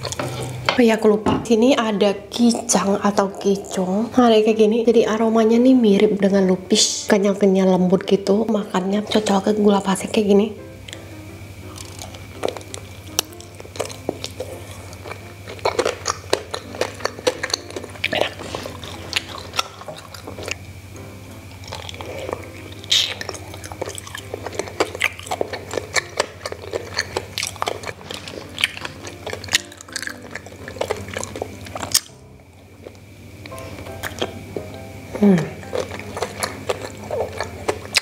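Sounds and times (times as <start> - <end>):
person chewing sticky food: 0.0 - 0.7, 10.8 - 38.0.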